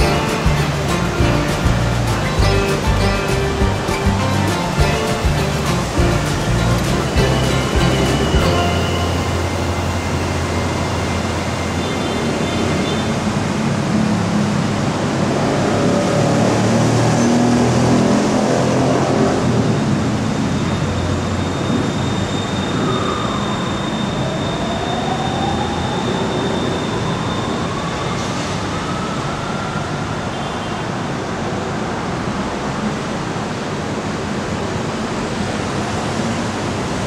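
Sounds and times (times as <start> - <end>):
traction motor whine rising: 0.0 - 13.4
electric train rumbling: 0.0 - 17.2.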